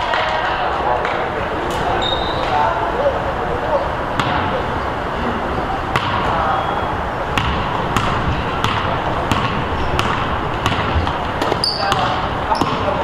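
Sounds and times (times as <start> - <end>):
background noise: 0.0 - 13.0
basketball dribbling on gym floor: 7.4 - 13.0.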